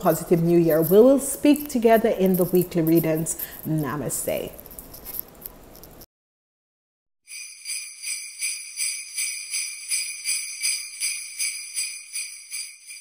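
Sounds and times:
sleigh bells shaking: 0.0 - 5.2, 7.3 - 13.0.

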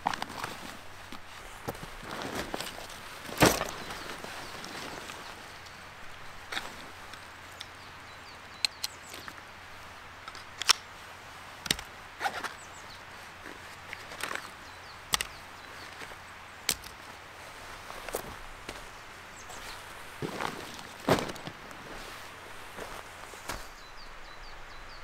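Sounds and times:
nylon straps rustling: 0.0 - 5.8, 16.8 - 23.8
plastic buckles clicking: 10.2 - 10.8.

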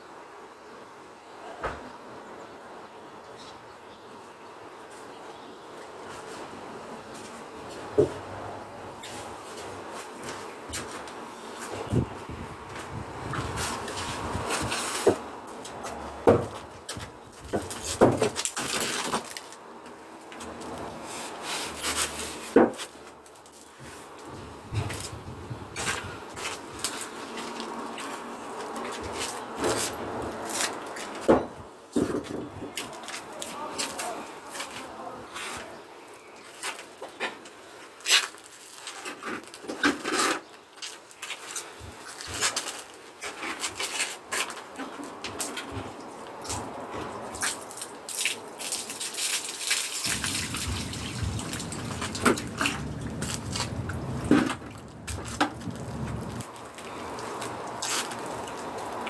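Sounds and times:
scraping on concrete wall: 20.4 - 35.7.

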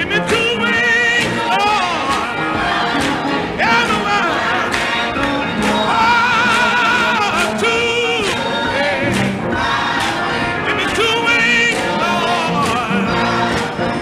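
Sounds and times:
man singing lead: 0.0 - 2.6, 3.6 - 4.8, 5.8 - 9.2, 10.5 - 13.4
choir singing: 0.0 - 14.0
guitar: 0.0 - 14.0
piano: 0.0 - 14.0.

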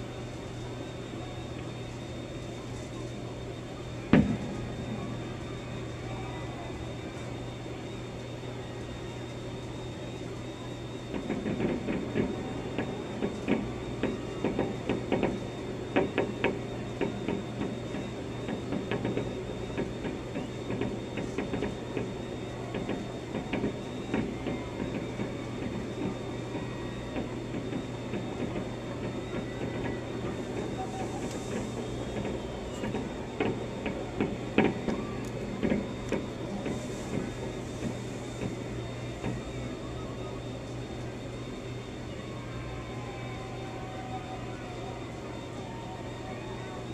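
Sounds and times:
steady low hum: 0.0 - 46.9
muffled fireworks pops and bangs: 11.1 - 15.4.

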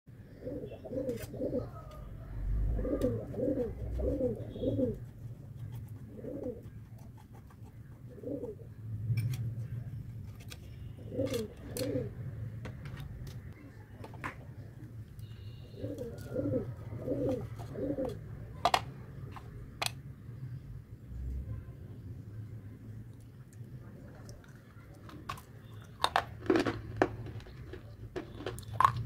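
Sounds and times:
dove cooing: 0.2 - 5.1, 6.0 - 6.8, 8.1 - 8.8, 11.0 - 12.2, 15.5 - 18.3.

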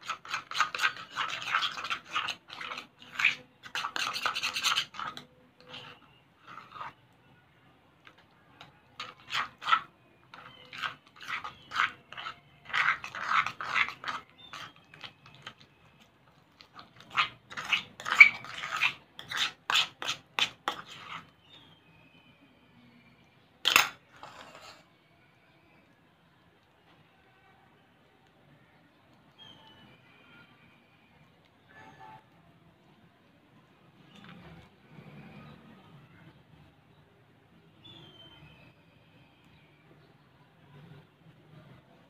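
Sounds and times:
spoon scraping and clinking bowl: 0.0 - 7.0, 8.0 - 21.8, 23.6 - 24.9.

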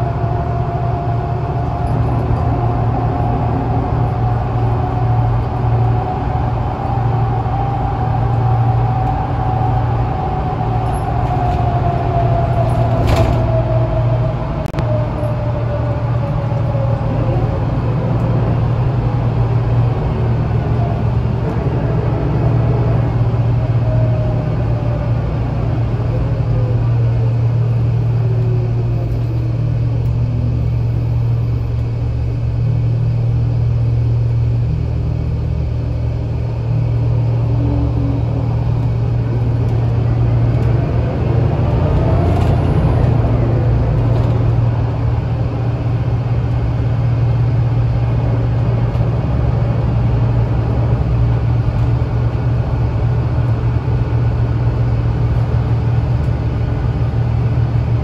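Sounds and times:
bus engine and road noise drone: 0.0 - 58.0.

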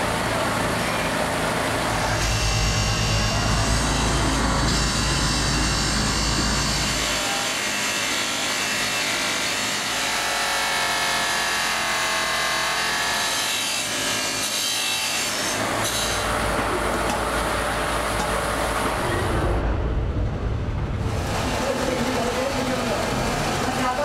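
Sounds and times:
low motor hum: 0.0 - 7.2.

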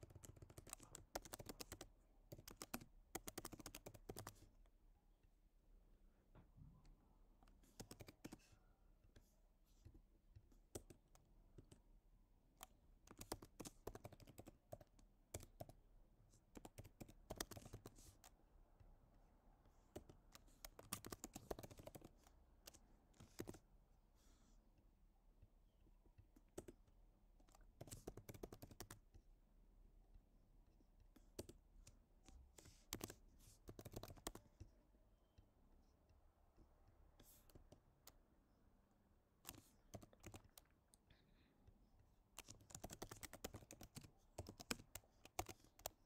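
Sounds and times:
typing on computer keyboard: 0.0 - 4.4, 7.6 - 8.4, 12.6 - 15.8, 16.5 - 18.4, 19.9 - 23.6, 26.2 - 29.2, 31.2 - 31.6, 32.6 - 34.6, 39.4 - 40.8, 42.4 - 46.0.

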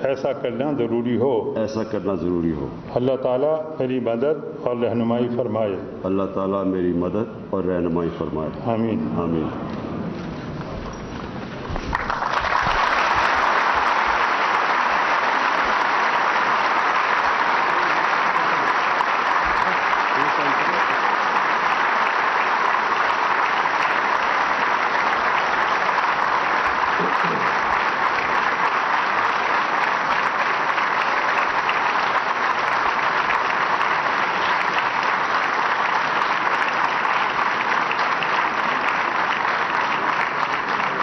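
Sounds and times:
large audience applauding: 11.7 - 41.0.

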